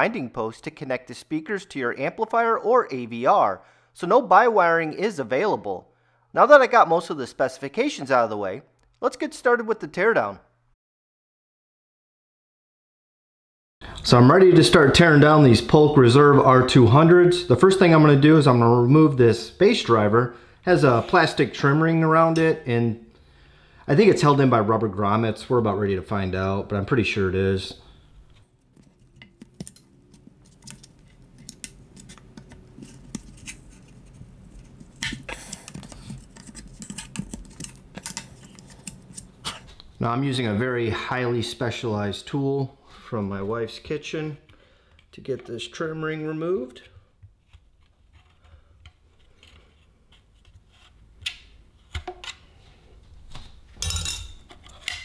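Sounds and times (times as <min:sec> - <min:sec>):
plastic trim clicking and scraping: 0:28.7 - 0:39.6.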